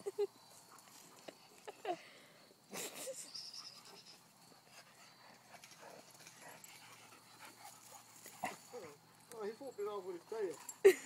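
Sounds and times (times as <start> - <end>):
dog panting: 3.5 - 11.0.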